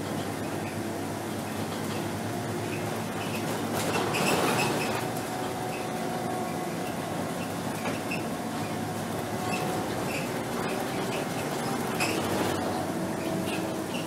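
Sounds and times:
bus diesel engine droning: 0:00.0 - 0:14.0
road noise: 0:00.0 - 0:14.0
high squeaks and rattles: 0:03.2 - 0:05.1, 0:09.4 - 0:14.0.

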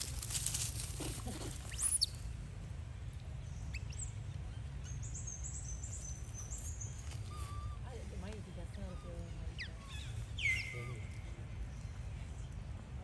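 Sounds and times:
animal chirps and squeaks: 0:00.9 - 0:02.2.

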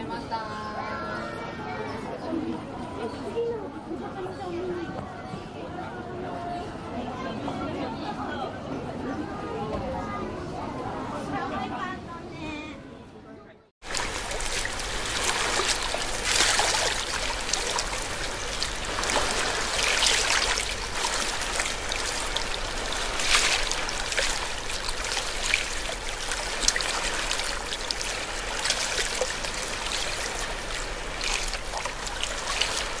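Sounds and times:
water running and trickling: 0:13.8 - 0:33.0.

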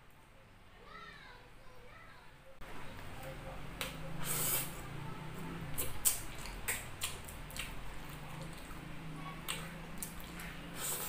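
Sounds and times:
hiss: 0:04.2 - 0:04.8
wet squishes: 0:05.8 - 0:11.0.

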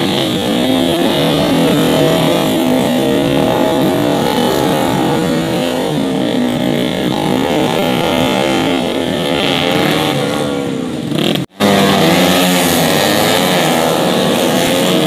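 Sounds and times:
racing motorcycles revving and passing: 0:00.0 - 0:15.0.

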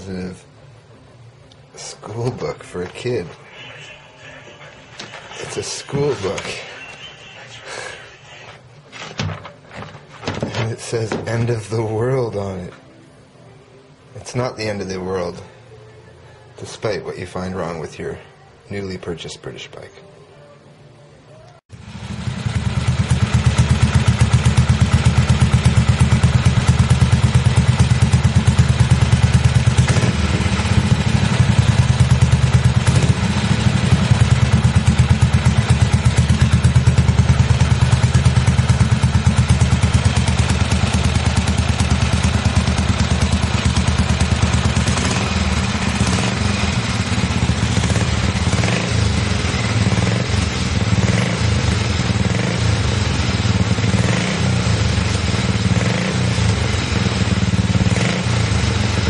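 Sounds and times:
motorcycle engine running: 0:21.7 - 0:59.0.

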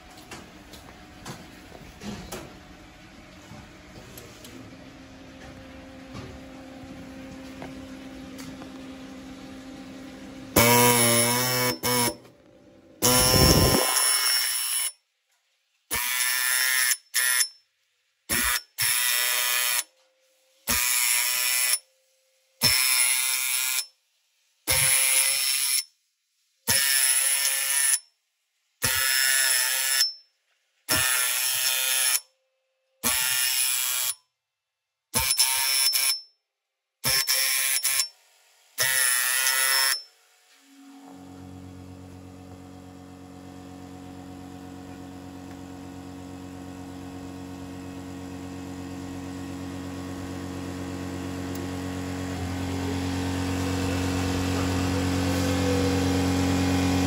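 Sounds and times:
marking machine hammering metal: 0:10.6 - 0:12.3, 0:13.0 - 0:15.0, 0:22.6 - 0:23.9, 0:28.8 - 0:30.2, 0:35.2 - 0:36.3, 0:37.0 - 0:38.2, 0:38.8 - 0:40.1.

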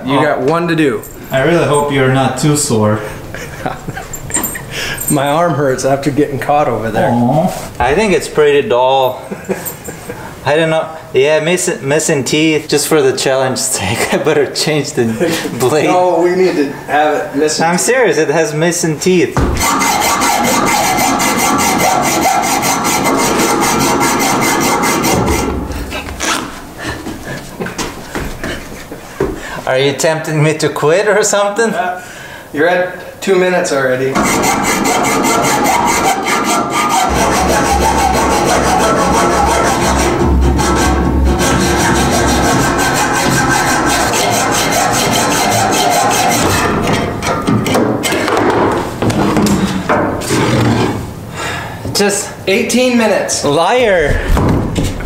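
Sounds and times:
hacksaw cutting metal pipe: 0:19.4 - 0:25.6, 0:34.2 - 0:48.2
pipe and saw knocks and clunks: 0:19.4 - 0:26.0, 0:34.2 - 0:51.0, 0:53.8 - 0:55.0.

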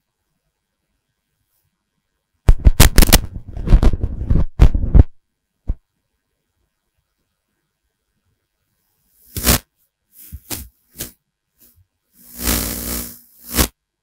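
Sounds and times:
microphone handling thumps: 0:02.5 - 0:05.8.

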